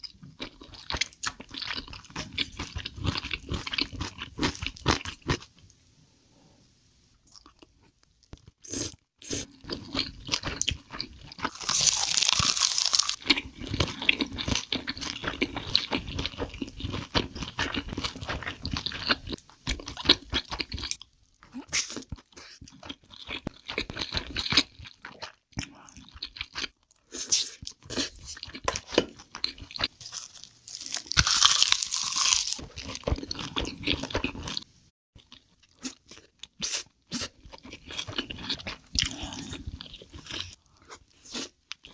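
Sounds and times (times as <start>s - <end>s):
crunchy chewing: 7.3s - 21.0s, 21.8s - 34.6s.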